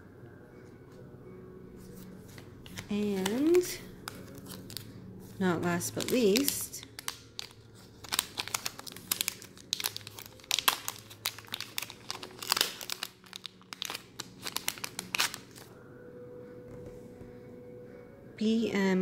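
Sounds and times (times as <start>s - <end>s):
plastic packaging crinkling: 2.6s - 4.9s, 5.5s - 15.7s.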